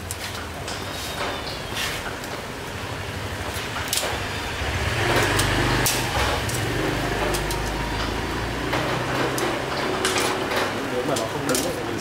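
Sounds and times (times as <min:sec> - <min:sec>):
metal tongs clicking on grill rack: 0:05.2 - 0:08.2, 0:08.8 - 0:12.0.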